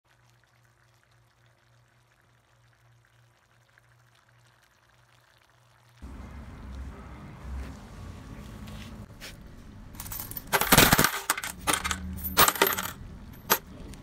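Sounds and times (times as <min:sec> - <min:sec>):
coins pouring into plastic basin: 0:10.0 - 0:13.6.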